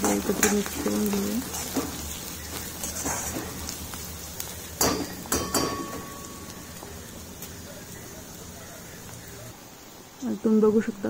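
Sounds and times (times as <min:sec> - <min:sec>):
onions sizzling in hot oil: 0:00.0 - 0:11.0
metallic clinks against pan: 0:04.8 - 0:06.6.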